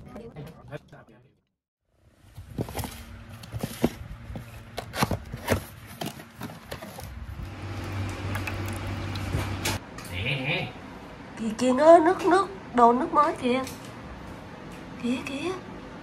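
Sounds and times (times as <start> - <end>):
pump humming: 7.4 - 9.8.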